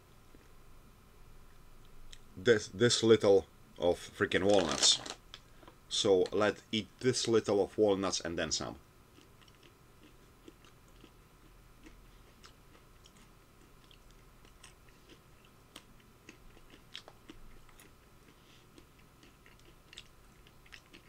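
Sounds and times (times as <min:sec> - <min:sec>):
walnut chewing crunches: 0:09.1 - 0:21.0.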